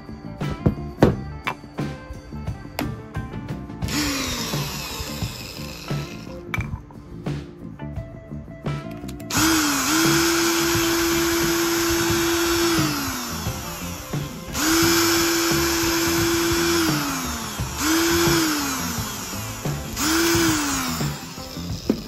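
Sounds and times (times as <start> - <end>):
small electric motor whining: 3.8 - 6.5, 9.3 - 22.0.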